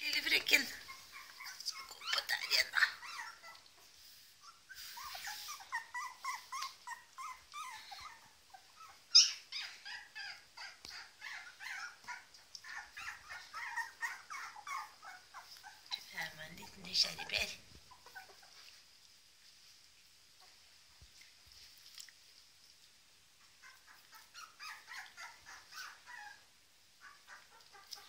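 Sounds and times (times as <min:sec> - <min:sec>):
puppies whimpering and squeaking: 0:00.2 - 0:18.8, 0:23.4 - 0:28.0.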